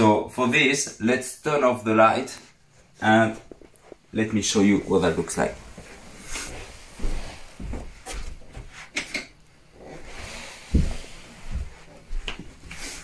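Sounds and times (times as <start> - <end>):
footsteps: 4.7 - 9.0, 9.8 - 13.0.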